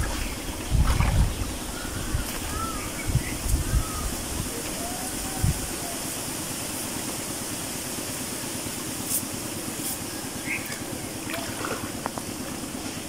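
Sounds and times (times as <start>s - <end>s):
water splashing and dripping: 10.5s - 12.7s.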